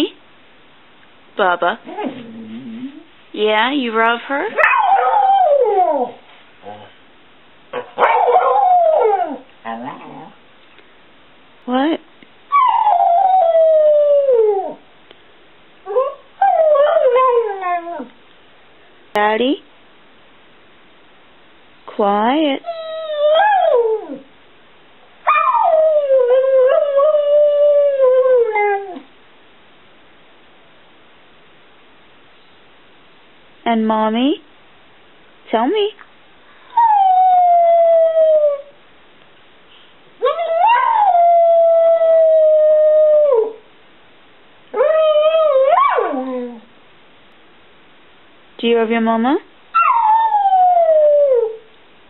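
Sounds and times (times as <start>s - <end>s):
dog howling: 4.6s - 6.9s, 7.8s - 10.4s, 12.5s - 14.8s, 15.9s - 18.2s, 22.7s - 24.3s, 25.3s - 29.1s, 36.7s - 38.8s, 40.2s - 43.6s, 44.8s - 46.7s, 49.8s - 51.7s.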